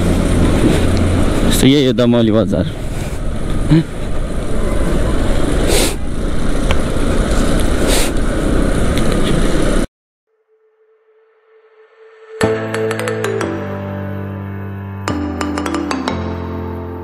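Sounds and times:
scooter wind and road noise: 0:00.0 - 0:09.9.

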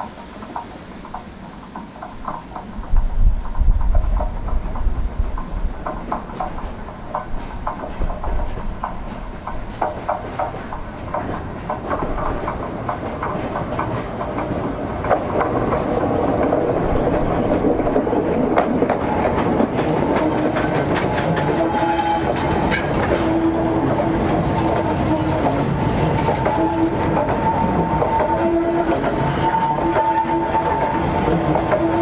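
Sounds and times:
steam locomotive working: 0:00.0 - 0:32.0
wagon wheels clattering over rail joints: 0:00.0 - 0:32.0
steady squeal: 0:21.2 - 0:32.0.

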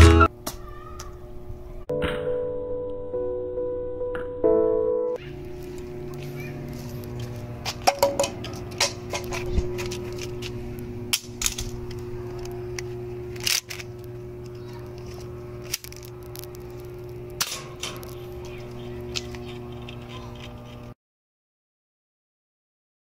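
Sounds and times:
transformer electrical hum: 0:00.0 - 0:01.9, 0:05.2 - 0:21.0
footsteps and handling scuffs: 0:05.5 - 0:10.6.

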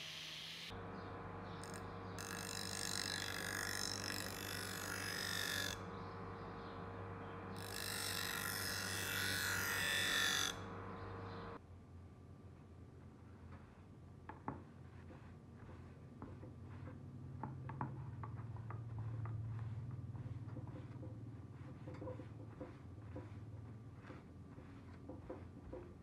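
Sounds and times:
bench grinder humming: 0:00.6 - 0:11.6.

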